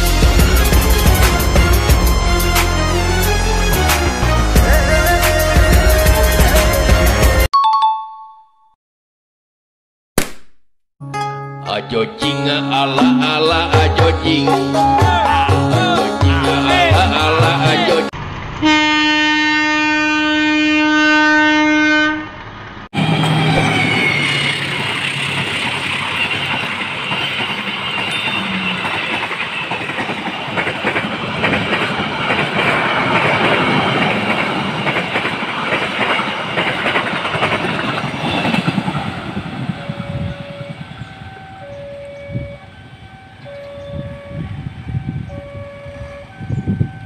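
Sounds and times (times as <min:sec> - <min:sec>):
train passing with rushing rumble: 0:00.0 - 0:07.5, 0:21.4 - 0:47.0
locomotive horn blast: 0:18.6 - 0:22.4, 0:39.6 - 0:46.6.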